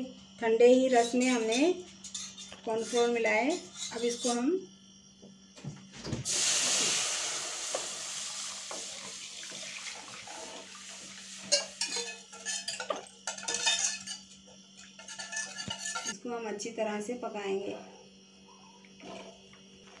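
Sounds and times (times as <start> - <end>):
liquid pouring into pan: 6.3 - 11.9.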